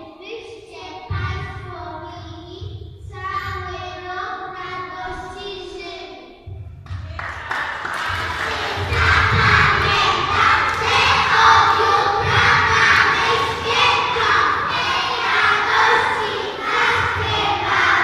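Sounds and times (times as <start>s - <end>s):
audience clapping and cheering: 6.8s - 18.0s
children singing together: 7.5s - 18.0s.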